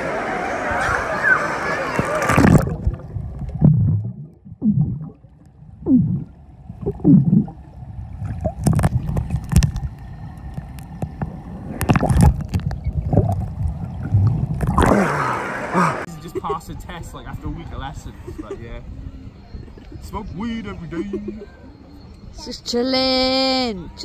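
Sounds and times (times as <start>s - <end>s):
microphone splashing into water: 2.0s - 7.6s, 8.2s - 9.9s, 11.7s - 16.0s
underwater bubbles gurgling: 2.1s - 16.1s.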